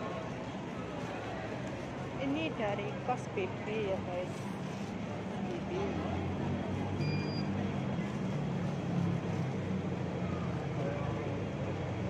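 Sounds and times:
faint chatter of passers-by: 0.0 - 12.0
low traffic rumble: 0.0 - 12.0
short high beep: 7.0 - 7.5.

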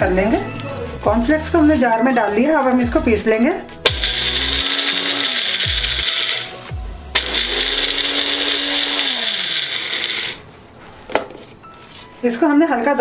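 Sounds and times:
blender grinding cornflakes: 3.9 - 10.4.

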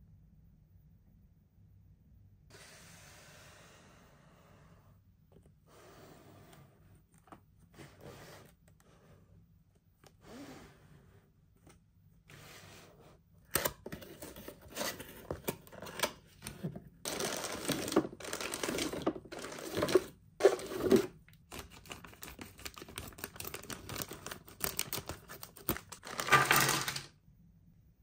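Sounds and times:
puzzle pieces clicking in plastic bag: 17.1 - 20.7, 21.6 - 27.1.

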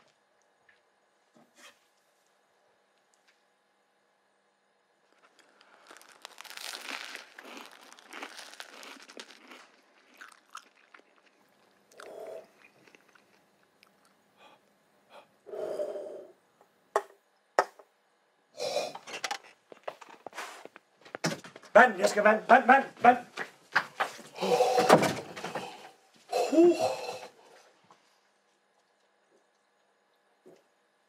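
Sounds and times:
person chewing a sandwich: 5.1 - 14.7, 28.2 - 30.3
mouth sounds: 24.3 - 27.4.

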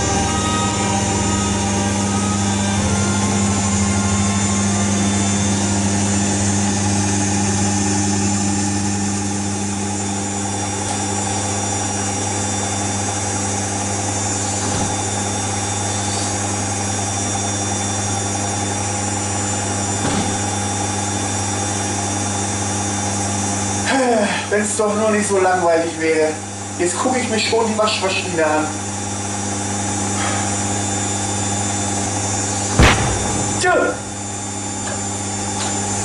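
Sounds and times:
washing machine motor hum: 0.0 - 23.0.

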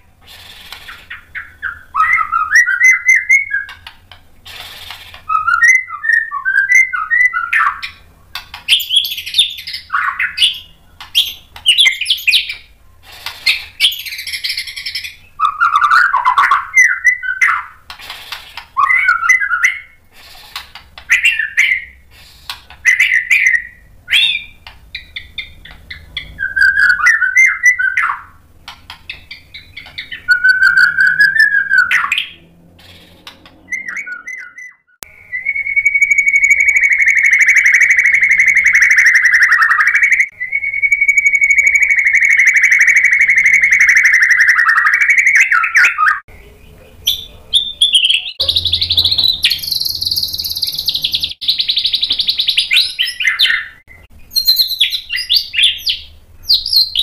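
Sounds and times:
songbird singing whistled phrases: 0.3 - 3.9, 5.3 - 8.0, 8.6 - 12.7, 13.5 - 17.8, 18.8 - 20.0, 21.1 - 22.0, 22.8 - 28.4, 29.1 - 46.4, 47.0 - 57.0
steady whistle-like tone: 33.6 - 44.3.

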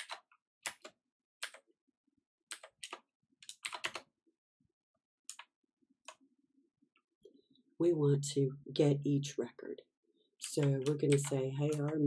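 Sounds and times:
keyboard keystrokes: 0.0 - 1.6, 2.5 - 4.1, 10.4 - 12.0.

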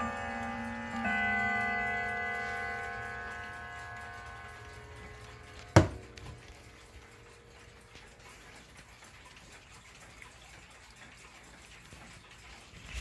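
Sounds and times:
clock chime ringing: 0.0 - 7.8
faint clock ticking: 0.0 - 13.0
sharp knock: 5.8 - 6.0.

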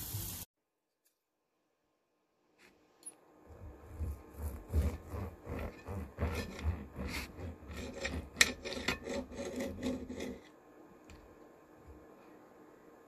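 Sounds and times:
knife sawing through steak: 3.9 - 10.5
knife blade rasping on plate: 4.7 - 10.5.

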